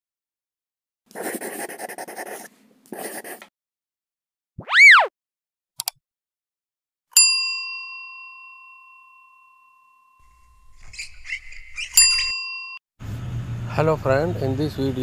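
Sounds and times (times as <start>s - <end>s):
swooping whistling tone: 4.6s - 5.1s.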